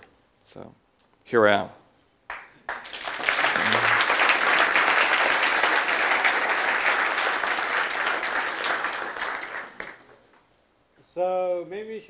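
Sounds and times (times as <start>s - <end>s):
audience applauding: 2.3s - 10.3s.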